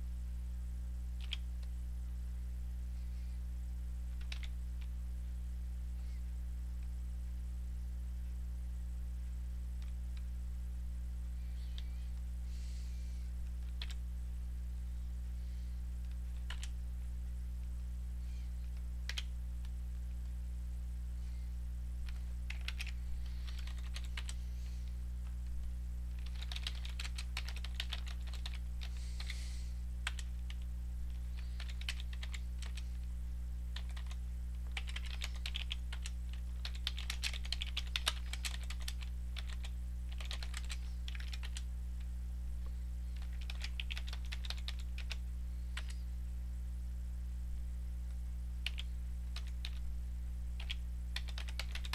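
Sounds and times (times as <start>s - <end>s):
steady low hum: 0.0s - 51.9s
typing on computer keyboard: 1.2s - 1.4s, 4.2s - 4.5s, 13.6s - 14.0s, 16.4s - 16.8s, 22.0s - 24.4s, 26.2s - 28.9s, 30.0s - 30.6s, 31.4s - 32.8s, 33.8s - 41.6s, 43.2s - 45.2s, 48.6s - 49.8s, 50.6s - 51.9s.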